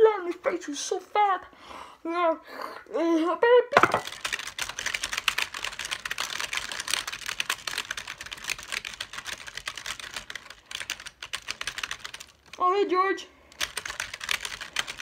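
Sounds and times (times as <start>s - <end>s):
fast typing on keyboard: 4.0s - 12.6s, 13.5s - 15.0s.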